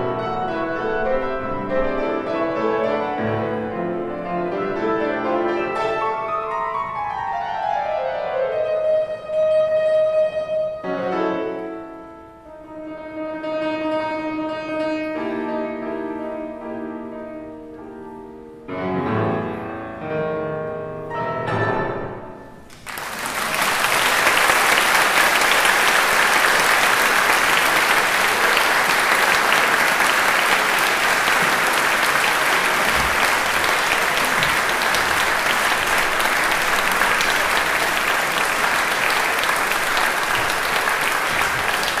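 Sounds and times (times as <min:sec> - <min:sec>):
audience applauding: 0:22.7 - 0:42.0.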